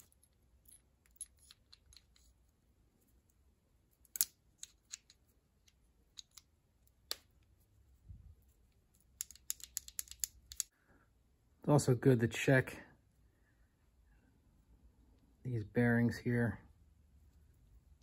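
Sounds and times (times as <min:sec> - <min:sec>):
small metal parts clicking: 0:00.0 - 0:02.5, 0:04.0 - 0:07.5, 0:08.7 - 0:10.7.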